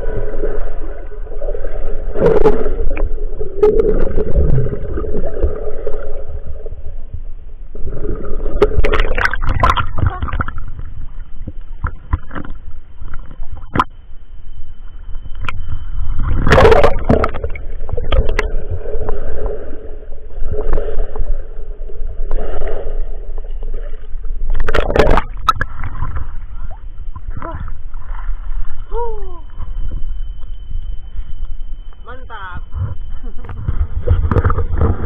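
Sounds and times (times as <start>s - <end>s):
muffled underwater sound: 0.0s - 35.0s
water sloshing and splashing: 7.8s - 14.0s, 15.1s - 31.2s, 32.6s - 35.0s.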